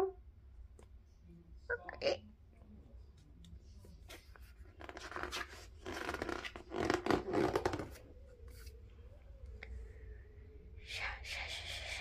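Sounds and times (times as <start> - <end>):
book page turning: 3.6 - 8.8.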